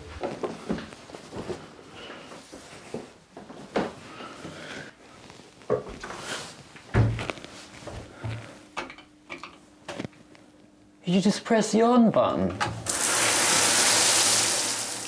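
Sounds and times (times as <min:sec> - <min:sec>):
footsteps: 0:00.0 - 0:08.7
towel and clothes rustling: 0:00.0 - 0:08.7.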